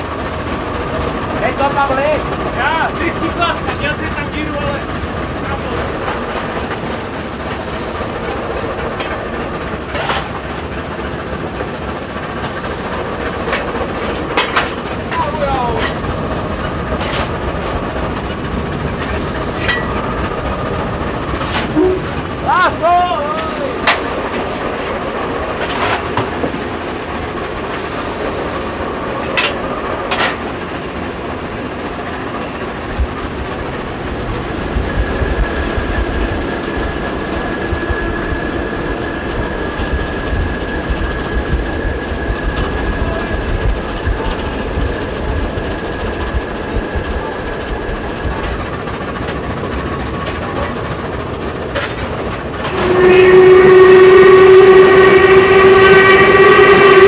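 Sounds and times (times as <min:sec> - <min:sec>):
locomotive cab running noise: 0:00.0 - 0:57.0
wheels clicking over rail joints: 0:00.9 - 0:38.8, 0:39.8 - 0:53.1
locomotive horn blowing: 0:21.6 - 0:22.2, 0:52.6 - 0:57.0.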